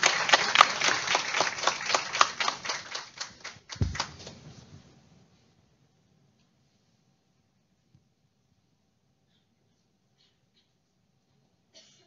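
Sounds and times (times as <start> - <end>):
audience applause: 0.0 - 4.3
low thud: 3.8 - 4.2.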